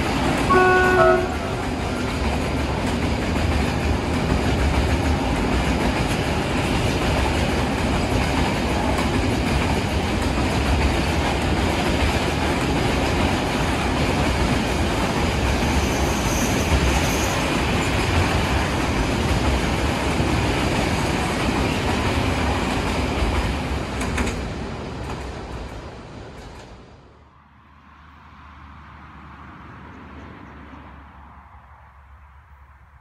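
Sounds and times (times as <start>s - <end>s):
freight wagons rumbling on rails: 0.0s - 27.2s
wheel squeal: 15.7s - 17.8s.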